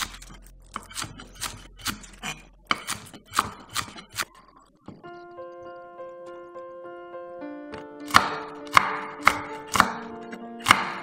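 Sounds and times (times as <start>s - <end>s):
knife chopping on wooden board: 0.0s - 4.3s, 8.0s - 11.0s.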